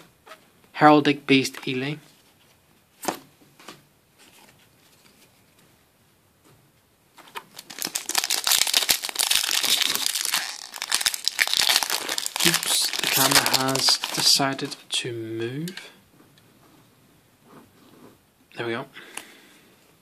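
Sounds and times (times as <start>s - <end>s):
foil pack tearing and crinkling: 7.6s - 14.7s.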